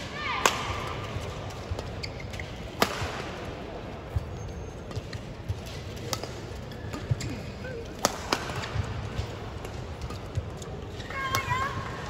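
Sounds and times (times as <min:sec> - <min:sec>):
low arena murmur: 0:00.0 - 0:12.0
rackets striking shuttlecock: 0:04.9 - 0:09.0.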